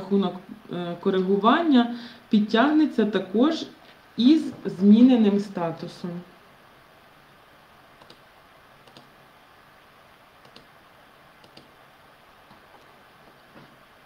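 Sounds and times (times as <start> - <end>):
computer mouse clicks: 8.0 - 8.2, 8.8 - 9.1, 10.4 - 10.7, 11.4 - 11.8.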